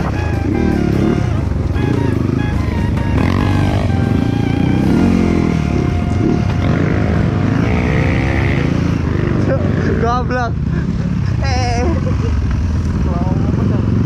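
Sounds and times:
background music: 0.0s - 9.2s
dirt bike engine revving: 0.0s - 10.6s.

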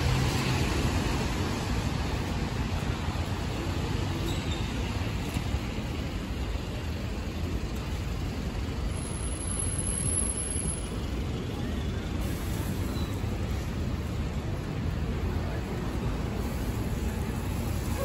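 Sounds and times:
tyres hissing on wet road: 0.0s - 7.4s, 8.4s - 18.0s
low traffic rumble: 0.0s - 18.0s.

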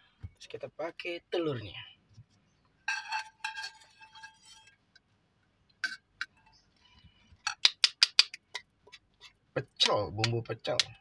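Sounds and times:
spatula scraping frying pan: 2.9s - 4.9s.

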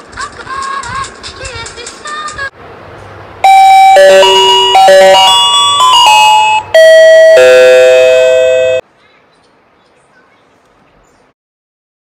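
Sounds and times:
electronic doorbell melody: 3.4s - 8.8s.

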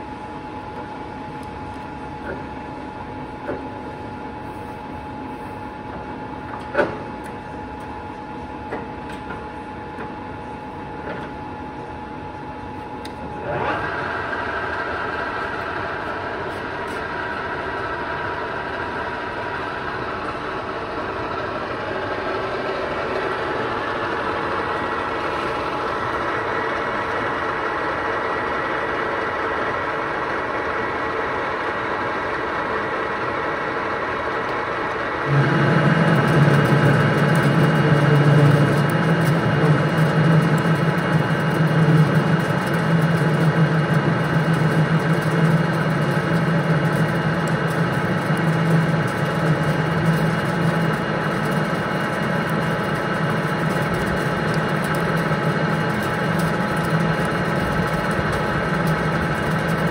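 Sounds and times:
lathe gearing whine: 0.0s - 59.9s
low hum: 35.2s - 59.9s.

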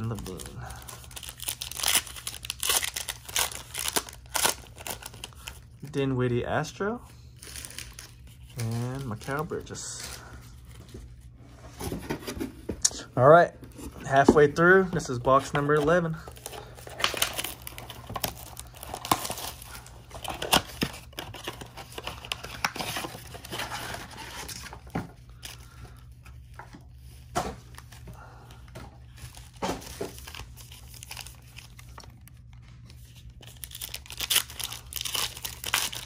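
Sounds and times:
foil pack crinkling and tearing: 0.0s - 5.9s, 7.3s - 10.4s, 15.7s - 28.0s, 29.1s - 36.0s.

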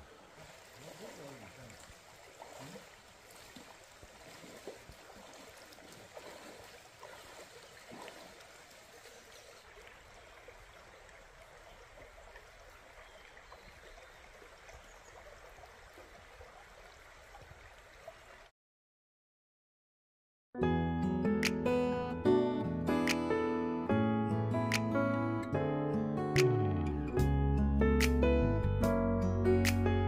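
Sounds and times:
mountain stream rushing: 0.0s - 18.4s.

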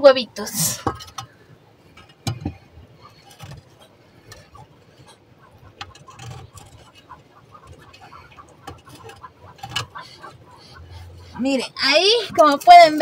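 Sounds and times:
tool clicking and scraping: 1.9s - 10.3s.

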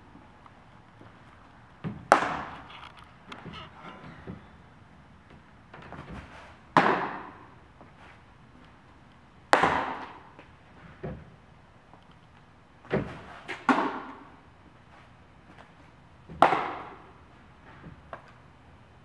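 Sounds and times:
baseballs smacking into gloves: 1.8s - 2.7s, 5.8s - 7.4s, 9.5s - 10.5s, 12.8s - 14.3s, 16.3s - 17.0s.

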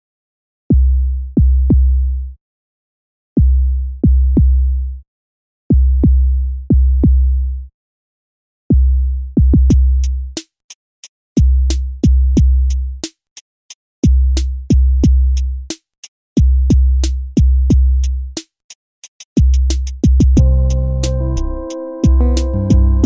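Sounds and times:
drum machine bass kicks: 8.7s - 10.1s, 11.4s - 12.8s, 14.0s - 15.4s, 16.4s - 18.1s, 19.4s - 23.0s
hi-hat ticks: 19.1s - 21.2s.

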